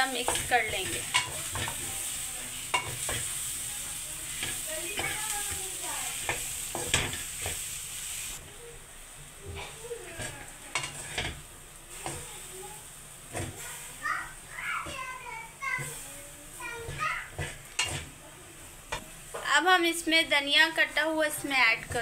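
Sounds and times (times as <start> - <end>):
spatula knocking pan: 0.0 - 1.9, 2.6 - 3.4, 4.3 - 7.6, 10.2 - 11.4, 16.8 - 18.1
spatula scraping pan: 0.0 - 8.5, 9.5 - 12.5, 13.3 - 14.0, 14.8 - 18.2, 21.3 - 22.0
oil sizzling: 0.0 - 22.0.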